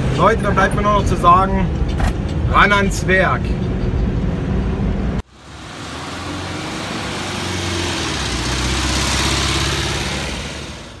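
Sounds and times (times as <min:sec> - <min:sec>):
van engine running: 0:03.6 - 0:11.0.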